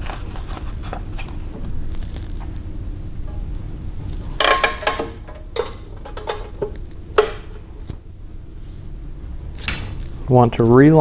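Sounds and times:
low steady hum: 0.0s - 11.0s
metal clanks and clinks: 4.3s - 7.7s.

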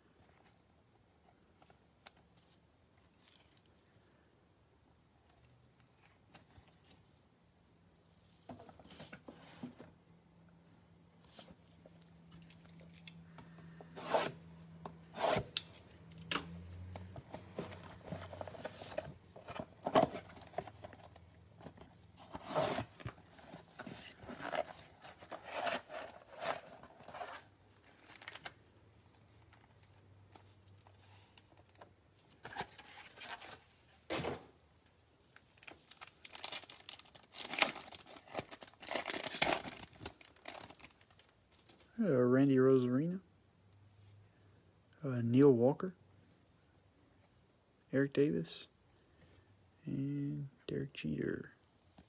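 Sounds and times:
cardboard rubbing and tearing: 22.3s - 23.0s
foil pack crinkly tearing: 35.6s - 41.2s.

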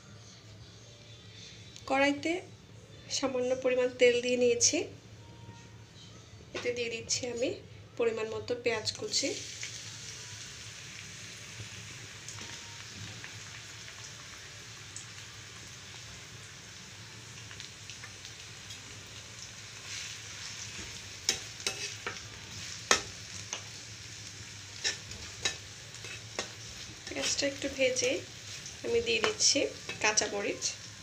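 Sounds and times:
onions sizzling in hot oil: 8.1s - 31.0s
utensil scraping a pan: 21.3s - 22.2s, 24.8s - 27.6s.

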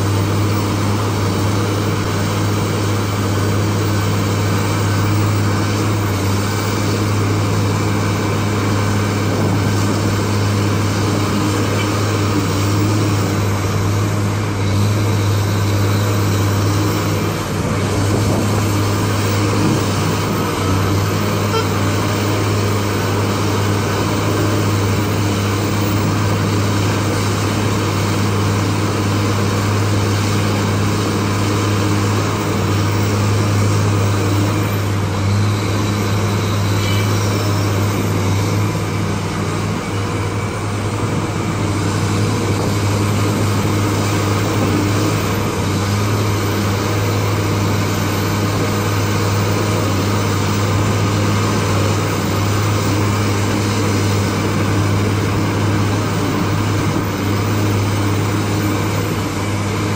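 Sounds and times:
excavator diesel engine droning: 0.0s - 59.9s.

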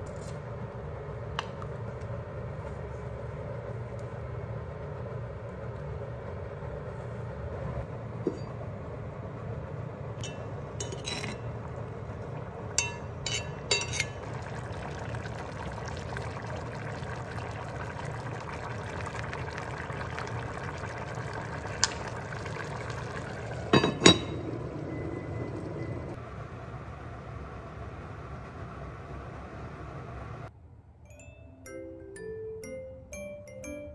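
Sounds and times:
metal spoon clinking pot: 10.2s - 11.5s, 12.7s - 14.2s, 23.7s - 24.4s
heavy pot lid clanking: 23.6s - 24.7s.

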